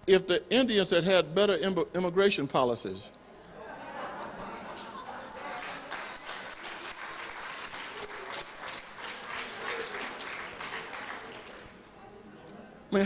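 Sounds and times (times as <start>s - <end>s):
audience laughing: 3.5s - 6.3s
audience clapping: 4.7s - 11.8s.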